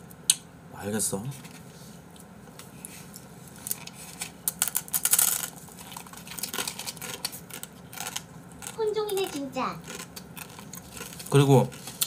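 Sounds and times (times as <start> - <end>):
dry noodles crunching: 3.6 - 12.0.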